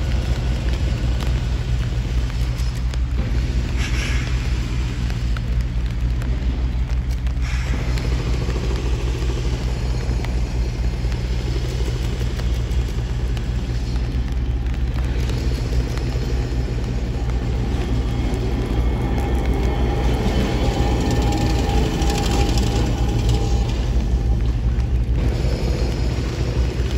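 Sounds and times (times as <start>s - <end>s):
tram passing on street track: 0.0s - 26.9s
thin whine: 7.3s - 26.9s.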